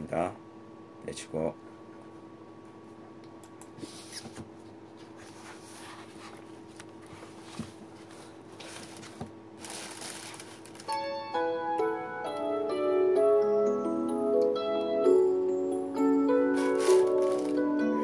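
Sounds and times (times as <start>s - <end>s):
instrumental track with keyboard notes: 10.9s - 18.0s.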